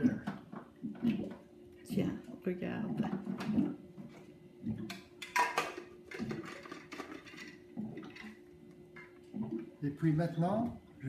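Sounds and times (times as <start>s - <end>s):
faint steady hum: 0.0s - 11.0s
plastic tumbler clatter: 5.2s - 8.4s.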